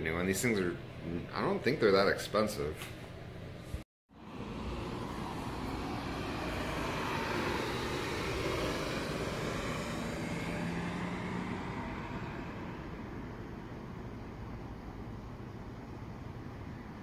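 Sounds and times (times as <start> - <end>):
vehicle passing: 4.1 - 17.0.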